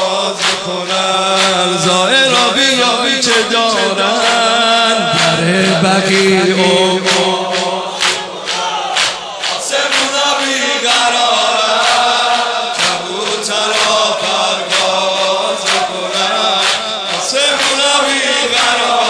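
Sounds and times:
men chanting a lament: 0.0 - 19.0.

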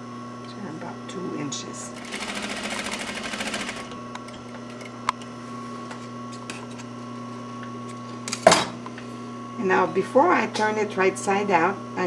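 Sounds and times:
steady hum: 0.0 - 12.0
sewing machine stitching: 2.0 - 4.0.

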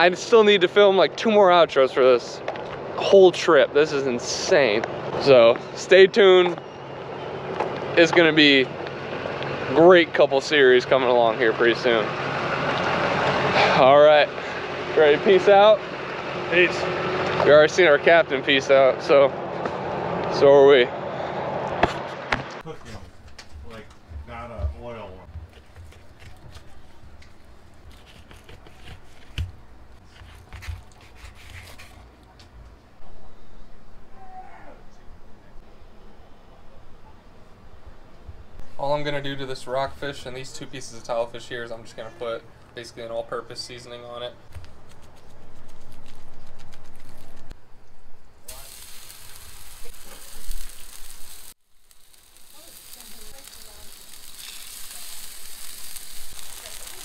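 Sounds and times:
fish sizzling on griddle: 48.5 - 57.0.

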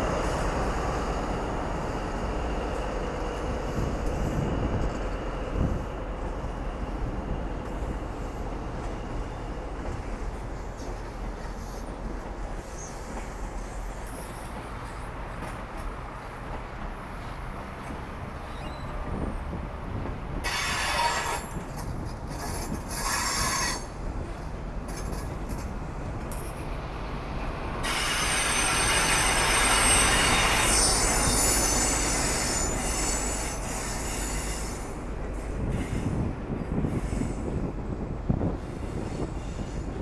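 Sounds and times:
train coaches rolling past: 0.0 - 40.0
high-pitched wheel squeal: 18.4 - 19.0, 20.4 - 21.6, 22.4 - 23.9, 27.8 - 34.8.

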